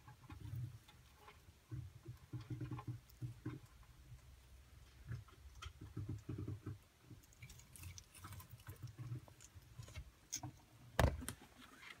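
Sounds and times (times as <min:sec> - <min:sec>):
small animal chewing crunches: 0:04.9 - 0:10.7.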